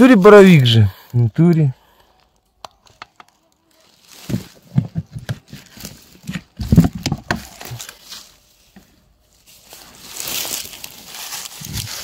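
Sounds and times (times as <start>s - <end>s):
rustling of dry leaf litter: 3.3s - 4.8s, 7.4s - 12.0s
sharp knocks and thumps: 4.2s - 7.8s.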